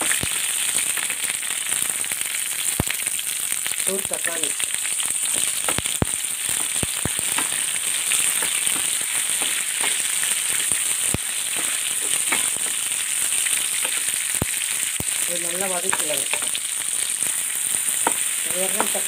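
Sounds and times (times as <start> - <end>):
vegetables sizzling in oil: 0.0 - 19.0
wooden spatula stirring: 11.5 - 12.9.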